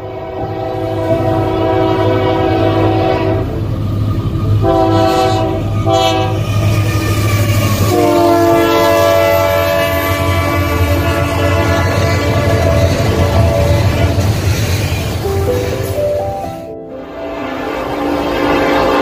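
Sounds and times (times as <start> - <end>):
locomotive air horn blasts: 0.0 - 3.6, 4.6 - 14.3, 17.1 - 19.0.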